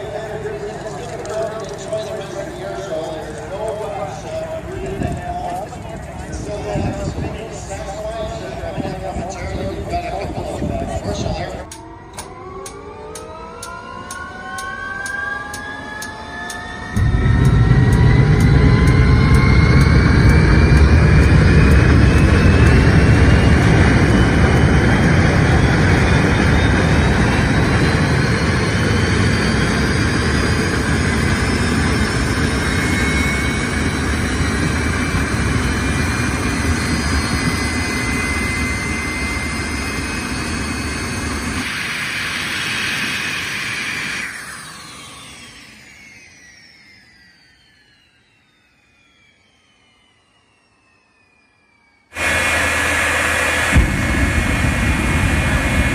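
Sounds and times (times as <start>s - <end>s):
jet engines roaring: 0.0s - 55.9s.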